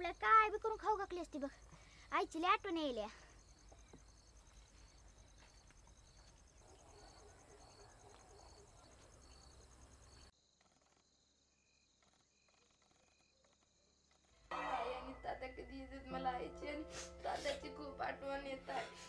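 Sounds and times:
crickets chirping: 0.0s - 17.6s.

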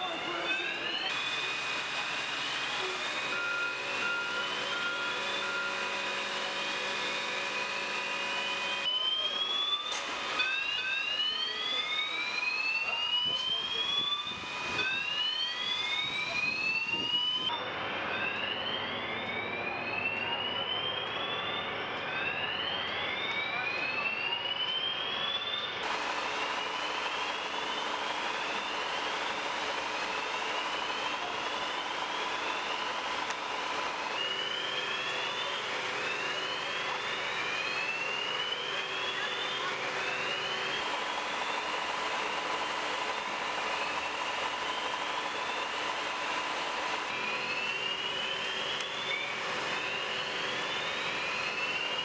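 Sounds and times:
evacuation alarm whooping: 0.0s - 52.0s
steady mechanical hum: 1.0s - 8.9s, 25.8s - 52.0s.

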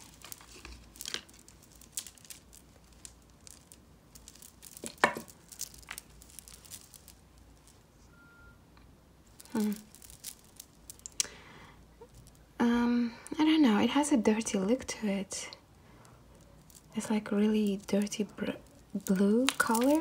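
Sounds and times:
beads clicking: 0.0s - 8.5s, 9.2s - 13.9s, 15.4s - 20.0s
soft rustling: 0.0s - 8.6s, 9.2s - 11.2s, 11.9s - 12.6s, 15.6s - 20.0s.

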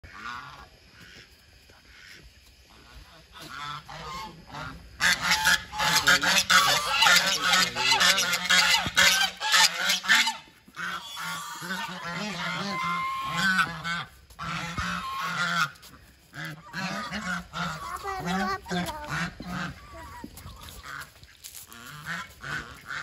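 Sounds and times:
geese honking: 1.9s - 23.0s.

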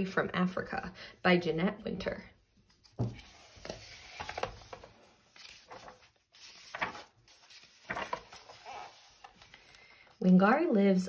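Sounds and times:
pages turning: 2.6s - 10.3s.

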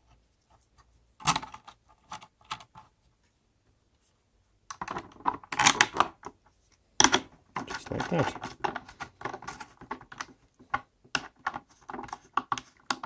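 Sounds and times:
plastic and metal parts clicking: 7.0s - 13.0s.

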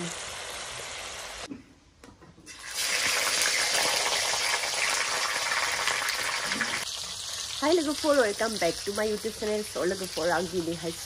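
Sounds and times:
fish frying in hot oil: 2.6s - 11.0s.

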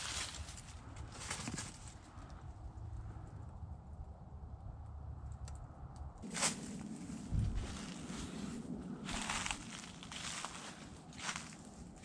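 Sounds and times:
footsteps in dry leaves: 0.0s - 2.0s, 6.2s - 12.0s
low rumble: 0.0s - 12.0s.

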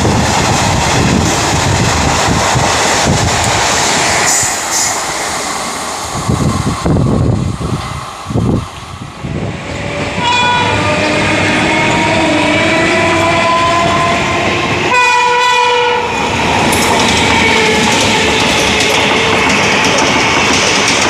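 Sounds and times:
train rushing and rail clatter: 0.0s - 21.0s
locomotive air horn blasts: 10.2s - 16.2s.

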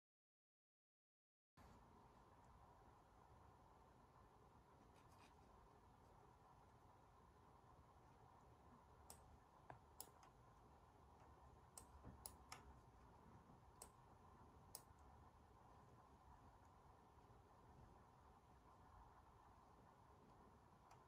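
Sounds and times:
computer mouse clicks: 9.0s - 10.4s, 11.2s - 12.8s, 14.7s - 15.1s.

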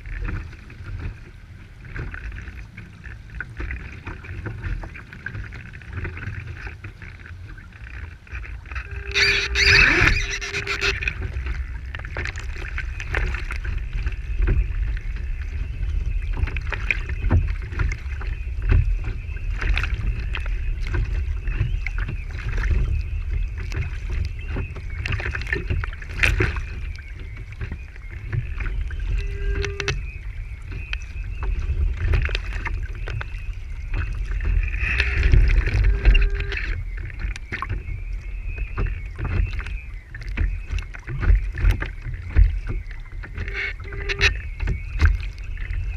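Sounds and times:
water slapping against hull: 0.0s - 45.9s
wind buffeting: 7.4s - 45.9s
short splashes: 7.8s - 14.7s.

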